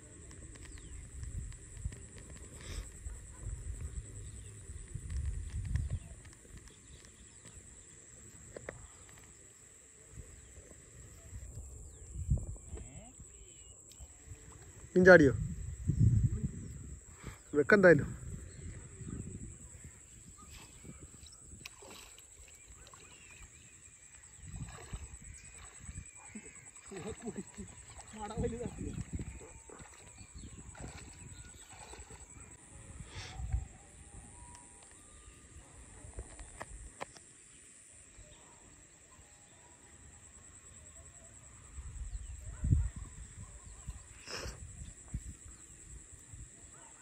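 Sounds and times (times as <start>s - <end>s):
high insect whine: 0.0s - 47.0s
faint bird chirps: 18.2s - 36.6s
water sloshing: 20.9s - 32.6s.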